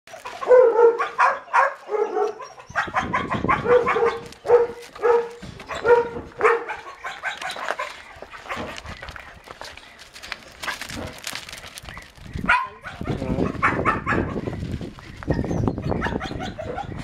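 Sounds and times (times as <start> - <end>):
dog barking: 0.3 - 8.8, 12.4 - 14.4, 15.3 - 17.0.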